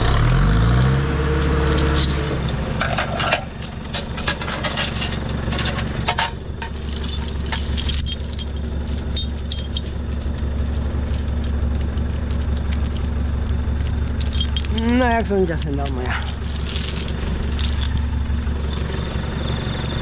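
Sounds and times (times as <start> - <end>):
diesel engine running at low revs: 0.0 - 20.0
metallic clinks and rattles: 1.3 - 20.0.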